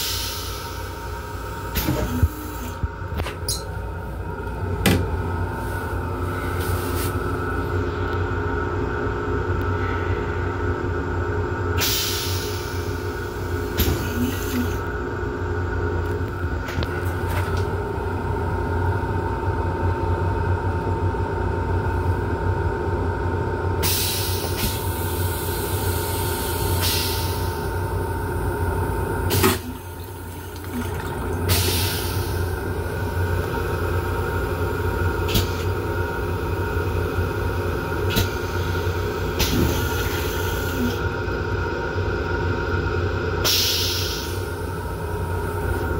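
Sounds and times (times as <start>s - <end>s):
moving train hum: 0.0s - 45.9s
toilet mechanism clunk: 4.8s - 5.1s, 29.3s - 31.8s
toilet flushing: 29.2s - 33.4s.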